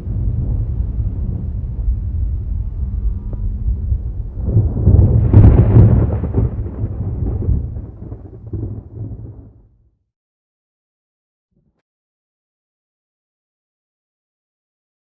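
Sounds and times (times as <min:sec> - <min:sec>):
thunder rumbling: 0:00.0 - 0:09.7.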